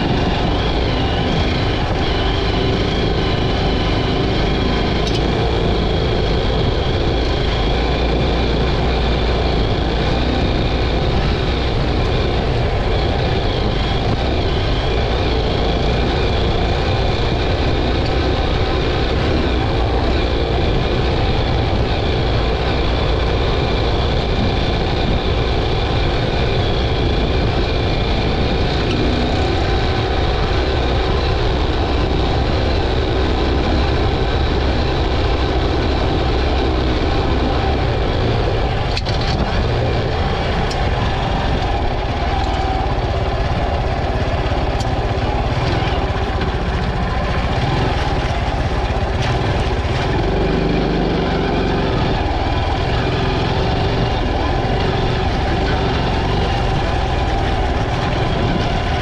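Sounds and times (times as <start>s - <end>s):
motorcycle engine running: 0.0s - 59.0s
wind noise: 0.0s - 59.0s
sharp ticks: 5.0s - 5.4s.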